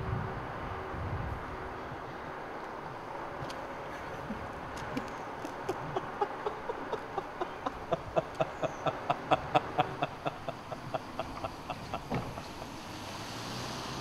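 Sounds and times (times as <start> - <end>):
man laughing: 5.4 - 12.8.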